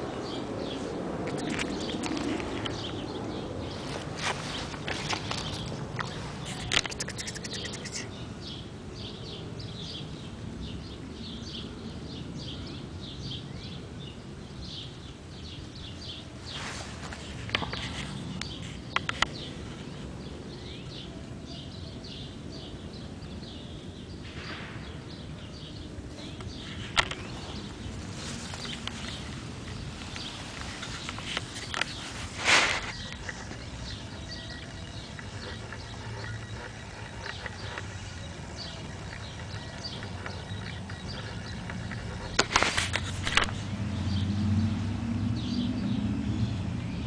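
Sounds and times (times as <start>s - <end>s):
small birds chirping: 0.0s - 47.0s
sharp clicks: 5.0s - 8.1s.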